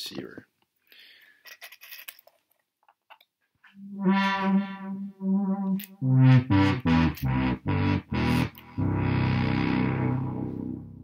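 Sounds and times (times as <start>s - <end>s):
electronic wind instrument notes: 3.7s - 11.0s.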